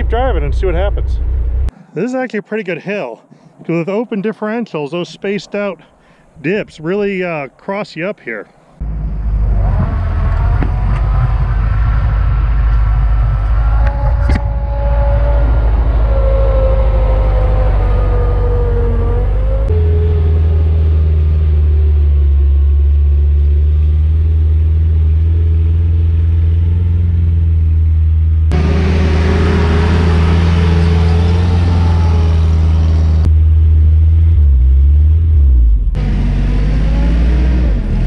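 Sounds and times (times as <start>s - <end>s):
four-cylinder engine droning under load: 8.8s - 38.0s.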